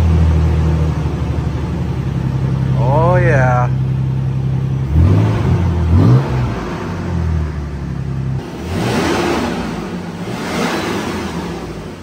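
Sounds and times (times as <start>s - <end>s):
engine idling deep burble: 0.0s - 12.0s
engine revving: 4.6s - 12.0s.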